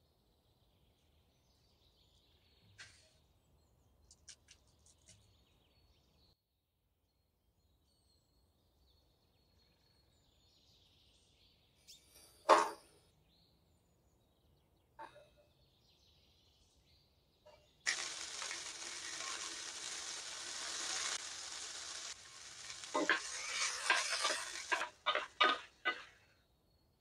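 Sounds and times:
vegetables sizzling in oil: 0:17.9 - 0:26.1
spatula scraping pan: 0:17.9 - 0:26.3.

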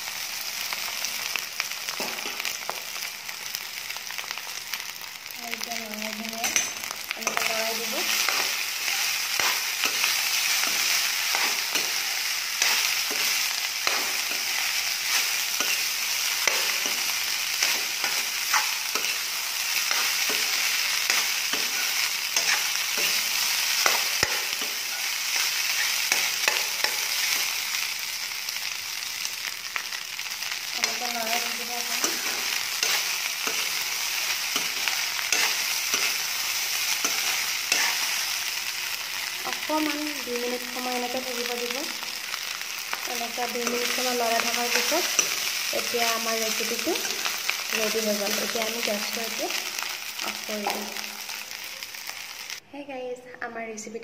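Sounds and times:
rice sizzling in a pan: 0:00.0 - 0:52.6
metal spatula scraping pan: 0:06.4 - 0:27.5, 0:30.8 - 0:38.2.

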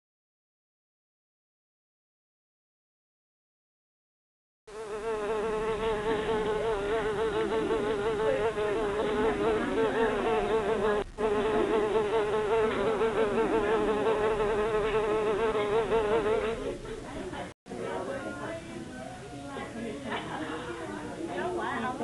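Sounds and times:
flies buzzing: 0:04.7 - 0:16.6.

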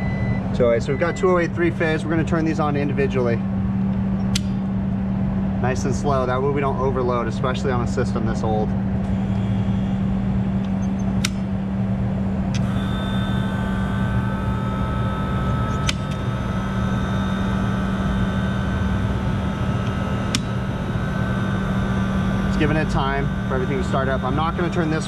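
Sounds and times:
motor whine: 0:00.0 - 0:05.7, 0:08.6 - 0:25.0
low equipment hum: 0:00.0 - 0:25.0
circuit breakers clicking: 0:03.9 - 0:04.7, 0:10.6 - 0:11.6, 0:14.7 - 0:18.8, 0:19.5 - 0:21.6.

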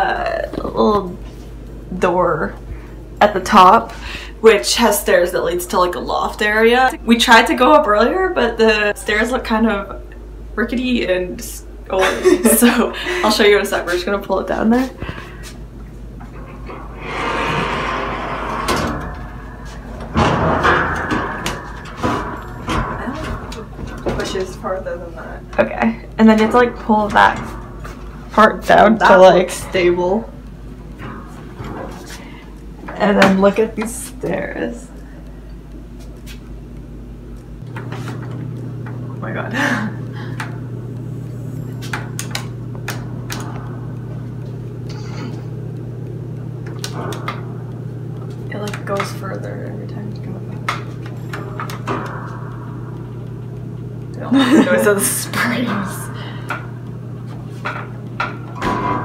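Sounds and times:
exhaust fan humming: 0:00.0 - 0:59.0
hatch scraping open: 0:16.4 - 0:23.7.

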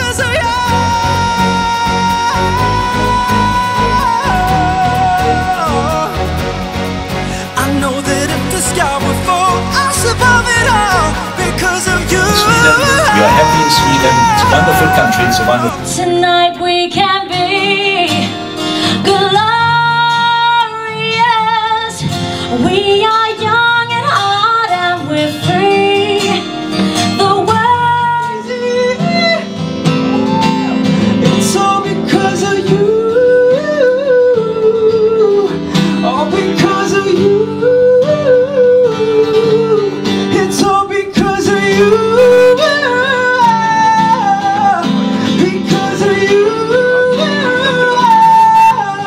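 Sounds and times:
woman singing: 0:00.0 - 0:06.4, 0:09.4 - 0:49.0
man singing: 0:00.0 - 0:06.5, 0:07.3 - 0:16.0, 0:31.2 - 0:49.0
acoustic guitar: 0:00.0 - 0:49.0.

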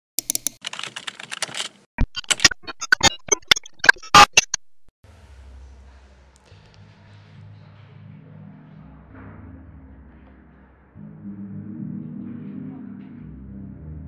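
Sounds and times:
digital clicks and crackles: 0:02.0 - 0:04.9
low synth bass drone: 0:05.1 - 0:14.0.

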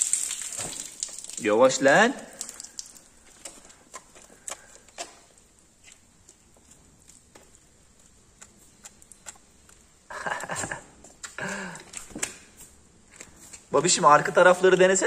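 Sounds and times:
calf suckling: 0:02.4 - 0:10.1.

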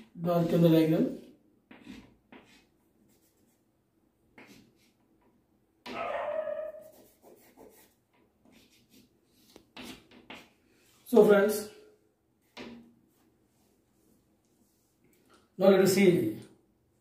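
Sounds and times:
chalk scratching on blackboard: 0:01.7 - 0:03.6, 0:04.4 - 0:05.0, 0:06.5 - 0:11.0.

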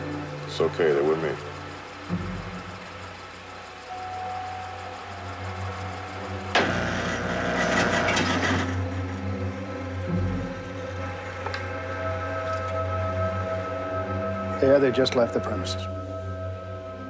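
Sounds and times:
rattling mechanical noise: 0:00.0 - 0:09.4
car engine idling: 0:00.0 - 0:12.6.

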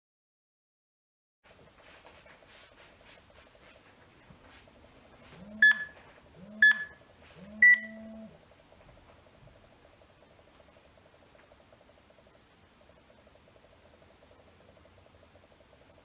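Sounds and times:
electronic countdown beeps: 0:05.5 - 0:08.3.

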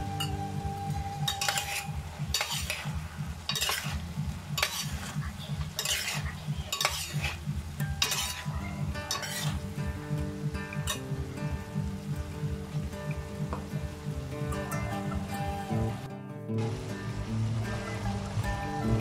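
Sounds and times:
food sizzling: 0:00.0 - 0:19.0
metal spoon scraping a wok: 0:01.2 - 0:09.7, 0:10.8 - 0:11.1.

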